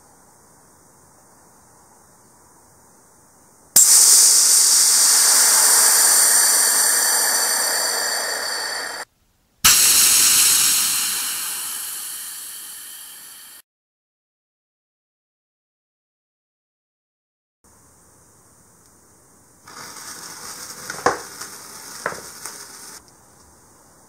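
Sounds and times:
gas hissing out of nozzle: 3.8 - 9.1, 9.7 - 13.6, 19.7 - 23.0.

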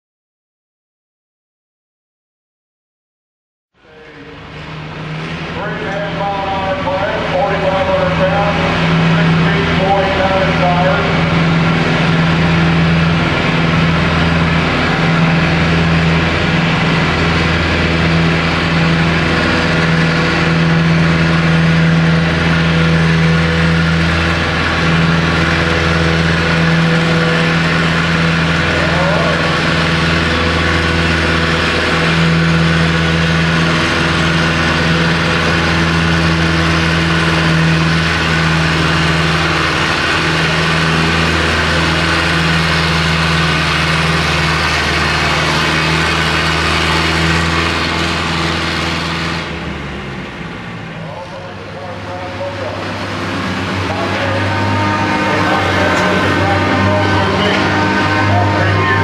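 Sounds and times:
tractor engine running: 3.8 - 59.0.

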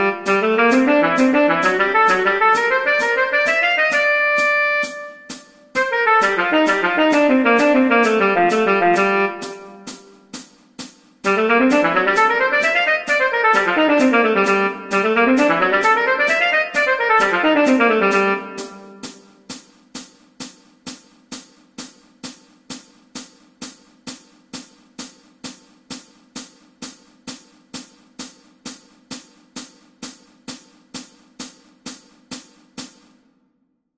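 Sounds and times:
tenor saxophone run: 0.0 - 5.2, 5.8 - 10.1, 11.3 - 19.2
hi-hat ticking: 0.0 - 33.3.

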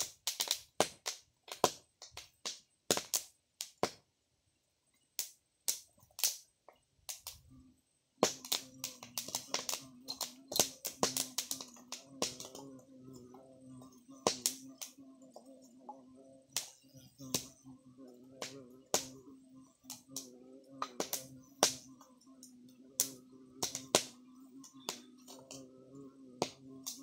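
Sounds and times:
wood fire crackling and popping: 0.0 - 4.0, 5.2 - 7.5, 8.2 - 15.9, 16.5 - 17.6, 18.4 - 19.2, 19.8 - 25.7, 26.4 - 27.0
steady low hum: 7.3 - 27.0.

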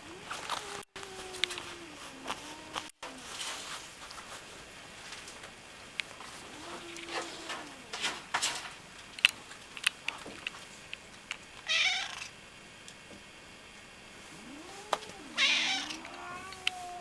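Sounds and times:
rustling: 0.1 - 10.9
cat meowing: 11.7 - 12.3, 14.4 - 17.0.

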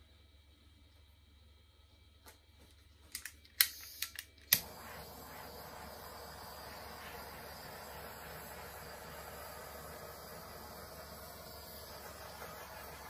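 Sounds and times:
flame hissing: 0.0 - 13.0
torch igniter clicks: 3.0 - 13.0.

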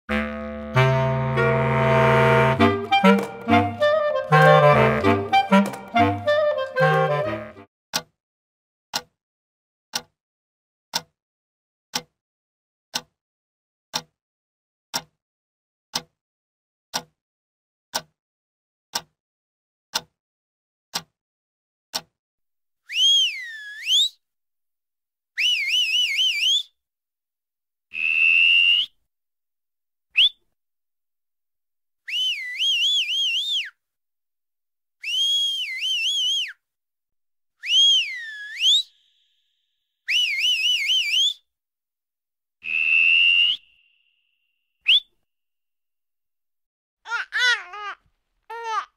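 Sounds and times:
person whistling: 2.6 - 7.4, 22.9 - 24.2, 25.4 - 26.7, 28.0 - 29.0, 30.2 - 30.4, 32.1 - 33.8, 35.0 - 36.6, 37.6 - 39.3, 40.1 - 41.4, 42.6 - 44.0, 44.9 - 45.1.

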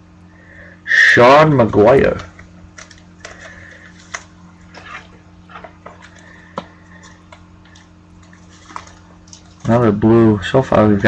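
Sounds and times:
steady low hum: 0.0 - 11.0
faint clicks and taps: 2.2 - 4.8, 5.5 - 9.7.

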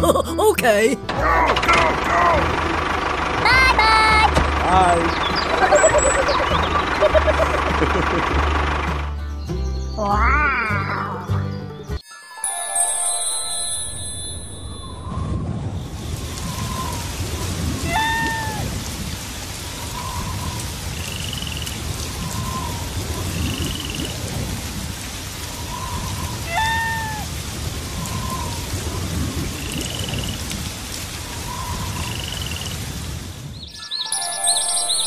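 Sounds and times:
heavy rain: 0.0 - 9.2, 12.8 - 35.0
loud bending calls: 1.1 - 9.4
low thunder rumble: 14.5 - 33.6.

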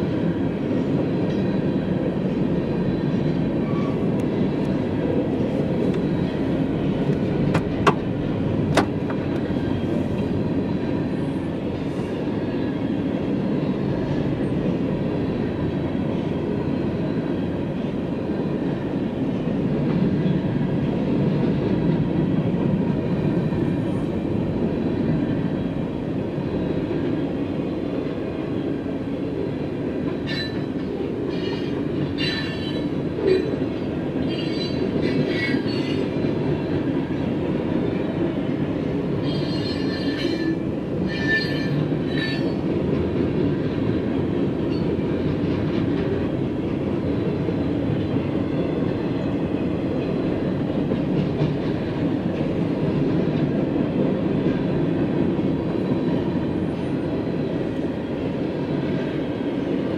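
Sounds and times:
steel wheels rumbling on rail: 0.0 - 59.9
high-pitched wheel squeal: 39.2 - 42.6.

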